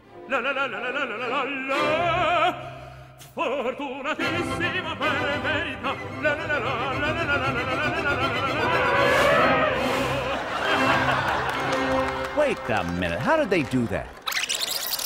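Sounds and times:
operatic voice singing: 0:00.0 - 0:10.6
orchestral accompaniment: 0:04.2 - 0:12.8.

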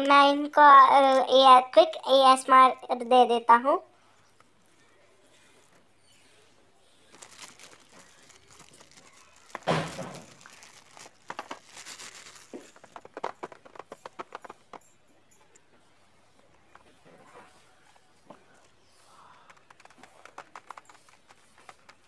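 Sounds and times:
cellophane tearing and crinkling: 0:07.1 - 0:14.5, 0:19.4 - 0:22.0
fingers crackling wrapped box: 0:07.1 - 0:14.8, 0:19.1 - 0:22.0.

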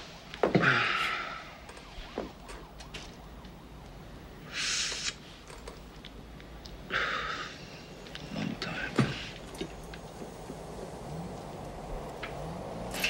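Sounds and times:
short hissing breaths: 0:04.4 - 0:05.4, 0:06.9 - 0:08.0.

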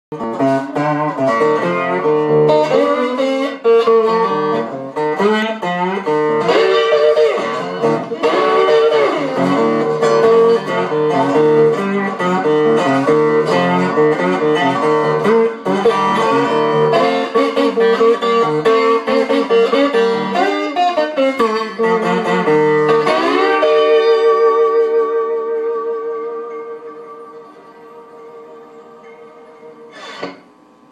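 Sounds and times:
electric guitar blues: 0:00.1 - 0:30.6.

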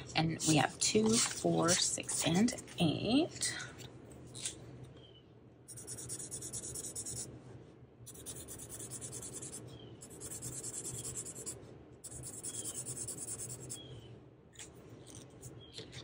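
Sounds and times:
marker scribbling on paper: 0:00.3 - 0:02.6, 0:05.7 - 0:07.2, 0:08.1 - 0:13.8.

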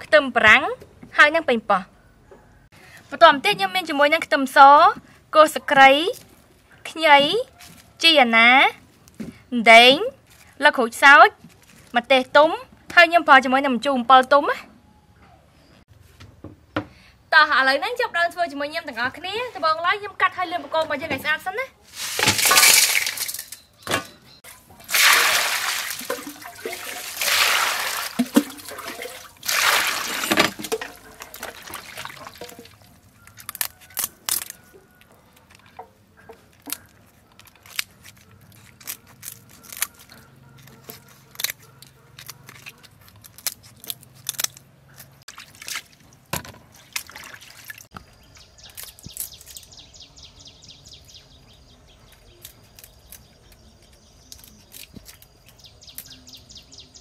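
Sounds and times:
water splashing in a bowl: 0:22.0 - 0:23.6, 0:24.7 - 0:33.0, 0:45.3 - 0:47.9
water dripping: 0:24.8 - 0:33.0.

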